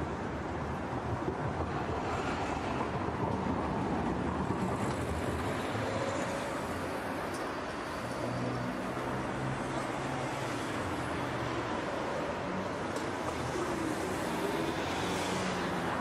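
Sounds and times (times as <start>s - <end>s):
tyres on asphalt: 0.0s - 16.0s
wind: 0.0s - 16.0s.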